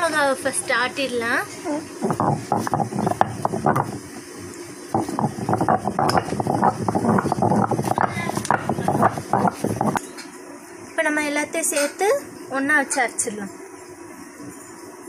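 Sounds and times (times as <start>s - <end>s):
stone grinding on stone: 2.0s - 4.2s, 5.0s - 10.0s.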